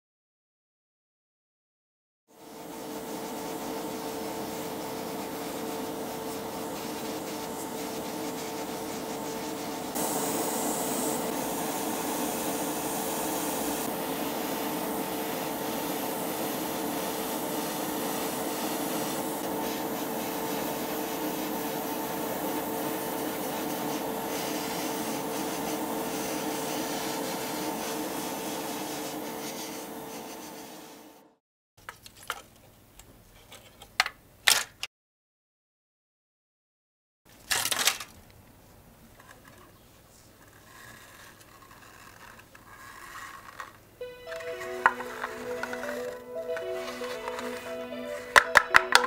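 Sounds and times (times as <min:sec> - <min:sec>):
extractor fan humming: 0:02.4 - 0:31.3, 0:43.9 - 0:49.0
airbrush hissing: 0:02.8 - 0:31.1.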